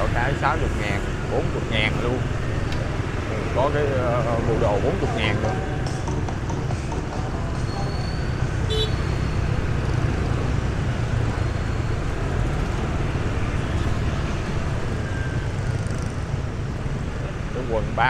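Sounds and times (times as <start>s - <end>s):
motorbike traffic rumble: 0.0s - 18.0s
short horn beep: 7.7s - 9.4s.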